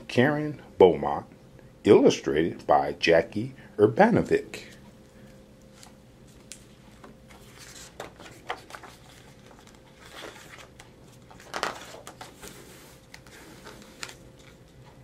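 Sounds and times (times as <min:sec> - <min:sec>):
book pages turning: 0:05.6 - 0:15.0.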